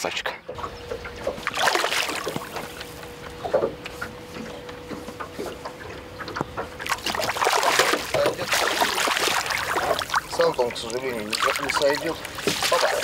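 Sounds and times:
fish splashing at water surface: 1.2s - 3.7s, 6.5s - 13.0s.

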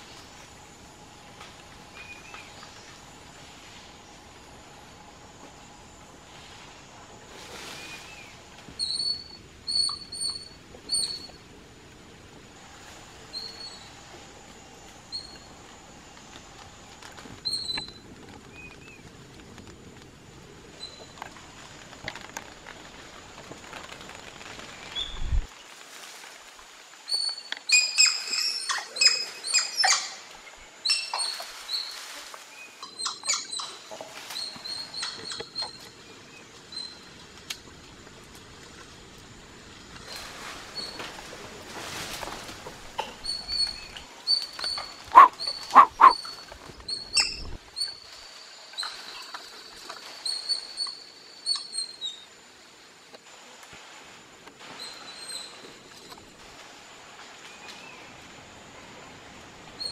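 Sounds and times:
monkeys squeaking and squealing: 44.3s - 46.3s.

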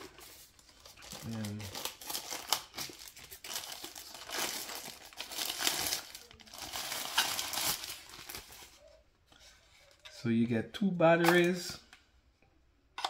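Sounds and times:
packaging crinkling and rustling: 0.0s - 9.0s.

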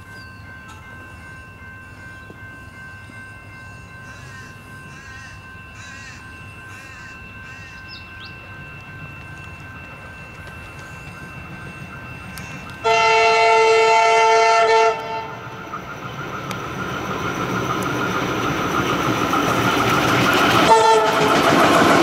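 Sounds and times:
distant electric train rumble: 0.0s - 22.0s
crow cawing: 4.1s - 7.8s.

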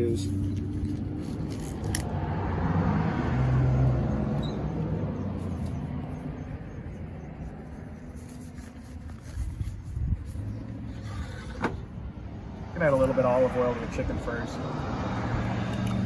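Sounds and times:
car driving past: 1.9s - 6.7s, 10.6s - 16.0s.

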